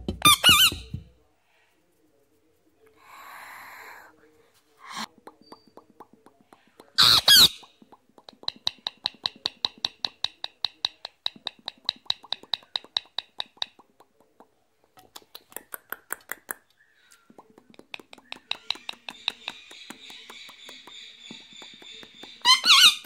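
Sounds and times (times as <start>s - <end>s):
parakeet clicking: 5.3s - 16.7s, 17.4s - 23.0s
parakeet squawk: 7.0s - 7.6s, 22.4s - 23.0s.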